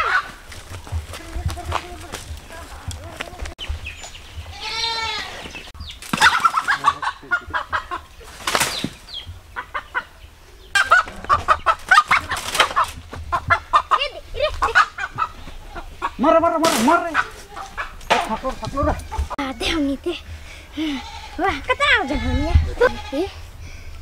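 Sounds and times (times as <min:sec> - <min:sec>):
wings flapping: 0:06.0 - 0:07.6, 0:08.2 - 0:09.1, 0:10.8 - 0:15.4.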